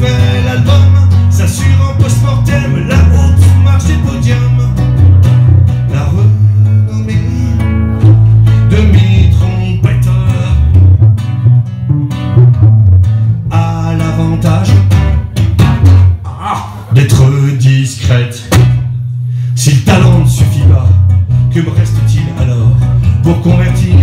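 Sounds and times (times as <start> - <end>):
electric bass walking line: 0.0 - 24.0
plucked electric guitar: 0.0 - 24.0.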